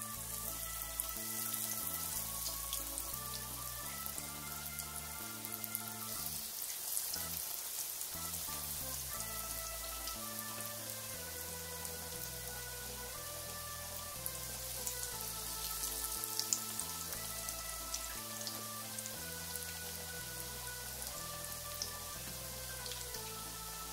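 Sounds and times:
background music with held notes: 0.0s - 23.9s
food sizzling in hot oil: 0.2s - 4.1s, 5.3s - 12.0s, 13.9s - 21.1s.

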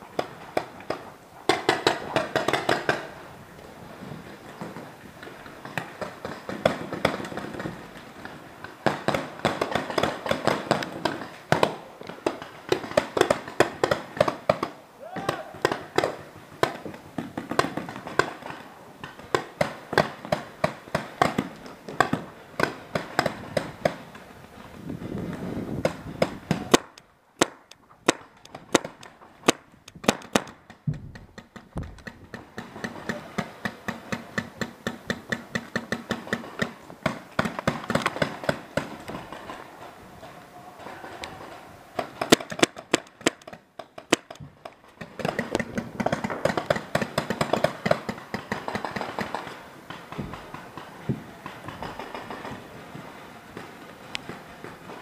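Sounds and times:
paintball markers firing: 0.2s - 3.1s, 4.5s - 24.2s, 25.3s - 55.0s.

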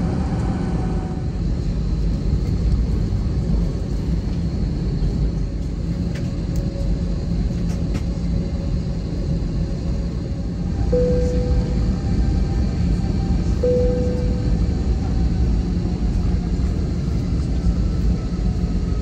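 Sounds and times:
aircraft cabin rumble: 0.0s - 19.0s
faint high whine: 10.7s - 15.6s.

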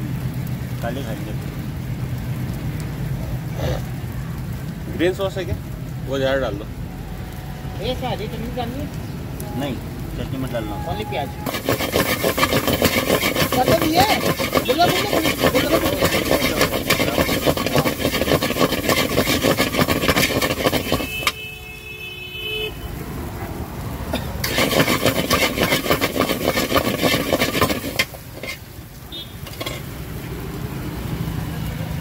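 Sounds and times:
metal spatula scraping pan: 11.4s - 21.4s, 24.2s - 28.7s, 29.5s - 29.9s.

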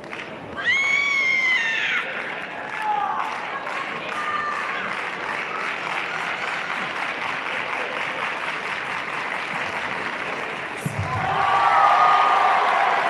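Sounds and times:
crowd clapping and cheering: 0.0s - 13.0s.

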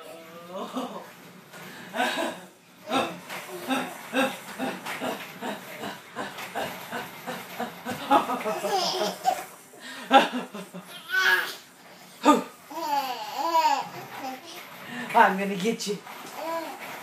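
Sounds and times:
woman laughing: 2.0s - 9.4s
babies laughing: 2.0s - 11.7s, 12.7s - 14.7s.

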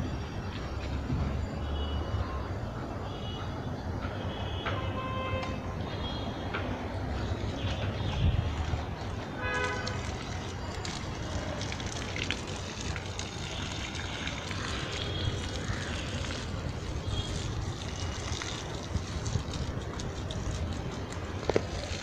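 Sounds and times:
hose water splashing on soil: 8.5s - 22.0s.

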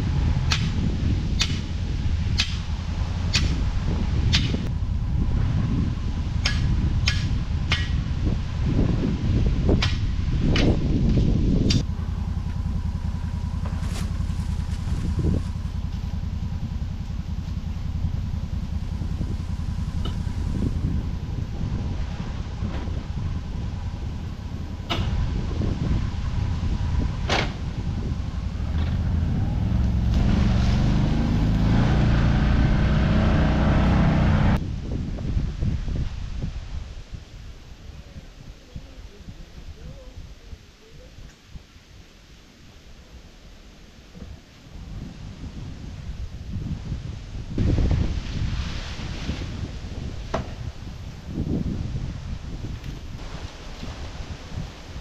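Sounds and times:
engine idling: 0.0s - 34.6s.

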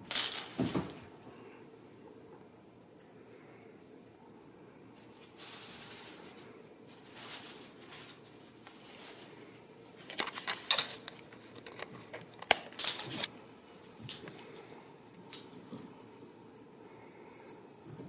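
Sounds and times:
kittens rustling on a rug: 4.9s - 12.1s.

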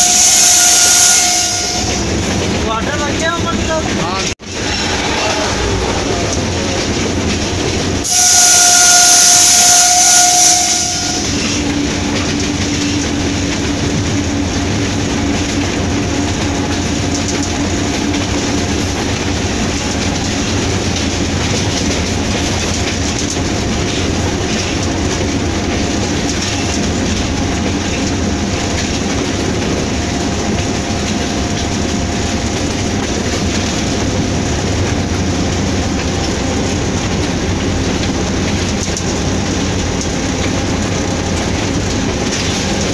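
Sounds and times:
locomotive horn blast: 0.0s - 2.2s, 8.0s - 11.6s
locomotive running noise: 0.0s - 42.9s.

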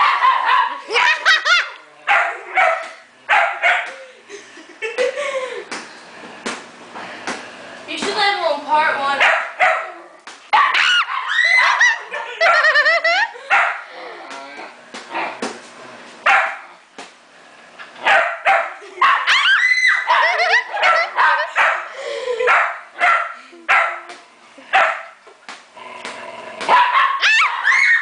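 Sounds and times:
small dog barking: 0.0s - 0.8s, 2.1s - 3.9s, 9.2s - 12.6s, 13.5s - 13.8s, 16.3s - 16.7s, 18.0s - 19.4s, 20.0s - 21.9s, 22.5s - 24.1s, 24.7s - 25.1s, 26.7s - 27.7s.

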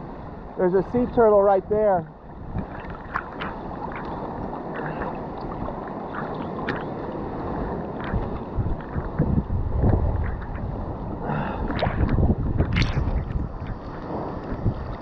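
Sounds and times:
sea water sloshing and lapping: 0.0s - 15.0s
small splashes and drips: 2.6s - 7.0s.

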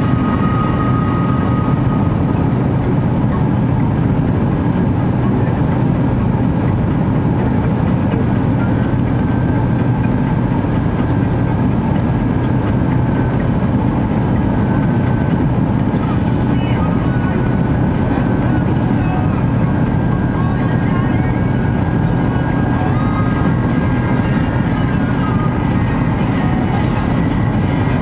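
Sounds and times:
faint high whine: 0.0s - 6.1s
jet engine and airflow rumble: 0.0s - 28.0s.

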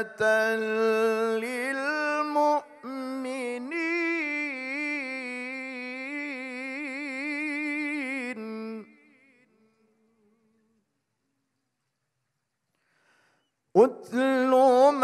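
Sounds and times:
man chanting recitation: 0.0s - 9.3s, 13.8s - 15.0s.

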